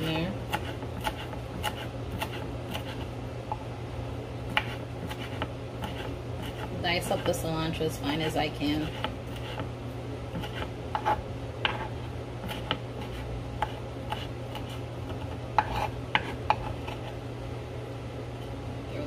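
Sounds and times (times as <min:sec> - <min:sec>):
knife chopping on wooden board: 0:00.0 - 0:03.1, 0:04.5 - 0:07.4, 0:08.7 - 0:09.7, 0:10.4 - 0:17.1
steady low hum: 0:00.0 - 0:19.0.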